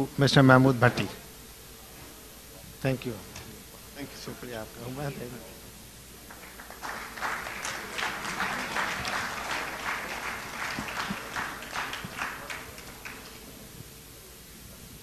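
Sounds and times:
audience applauding: 6.2s - 13.6s.

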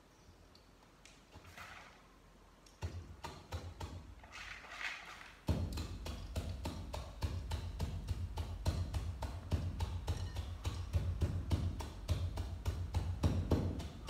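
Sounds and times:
pestle pounding in mortar: 2.8s - 4.2s, 5.5s - 14.0s.

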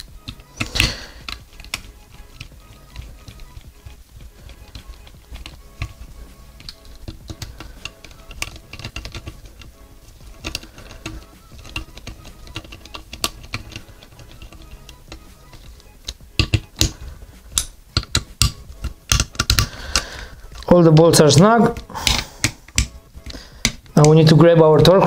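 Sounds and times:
background music: 0.0s - 25.0s
metallic clicks of hand driver: 10.3s - 20.8s.

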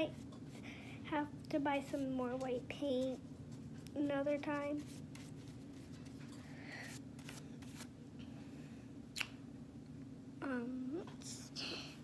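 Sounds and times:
brush strokes on cardboard: 2.9s - 7.9s.

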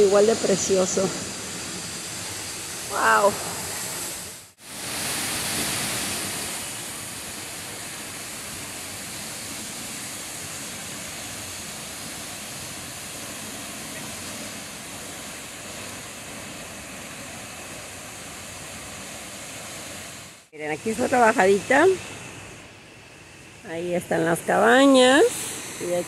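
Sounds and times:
waterfall rushing: 0.0s - 20.2s.

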